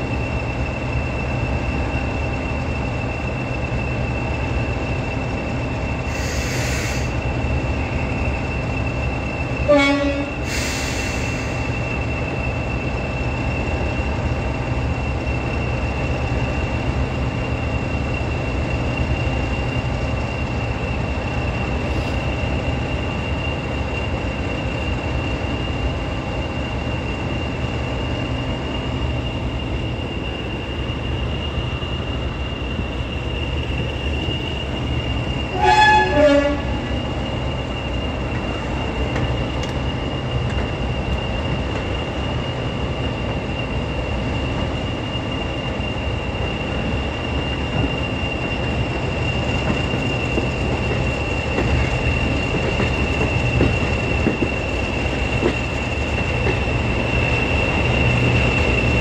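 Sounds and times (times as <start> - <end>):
diesel locomotive engine droning: 0.0 - 59.0
two-tone train horn: 9.6 - 10.5, 35.5 - 36.9.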